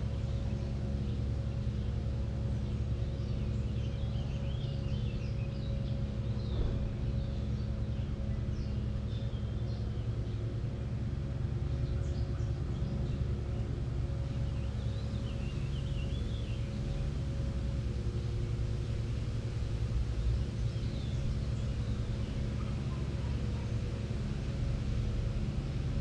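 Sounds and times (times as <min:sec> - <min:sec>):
low mechanical hum: 0:00.0 - 0:26.0
brief knock: 0:06.5 - 0:06.9.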